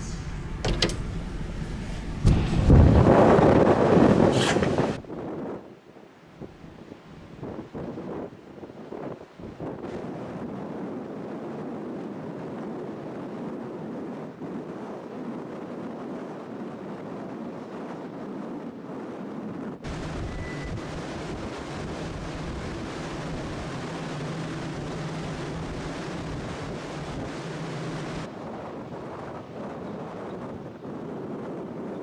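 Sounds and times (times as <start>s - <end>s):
low rumble with steady hum: 0.0s - 4.2s, 19.9s - 28.4s
ship machinery drone: 0.0s - 5.0s, 18.9s - 32.0s
wind: 0.0s - 32.0s.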